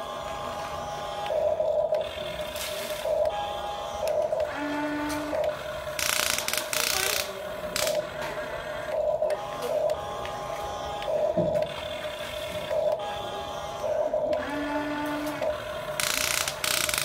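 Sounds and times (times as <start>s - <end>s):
toy electric motors whining: 0.0s - 17.0s.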